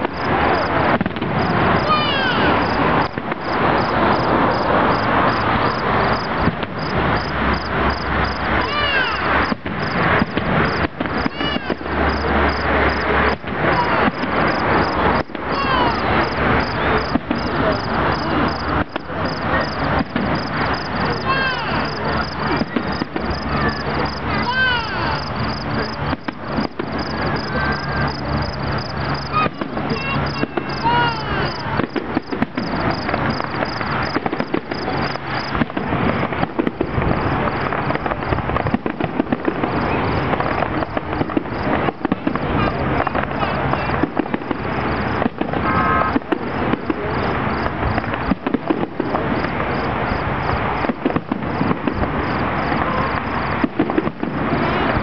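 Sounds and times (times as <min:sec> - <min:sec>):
crowd voices: 0:00.0 - 0:55.0
fireworks bursting and crackling: 0:00.0 - 0:55.0.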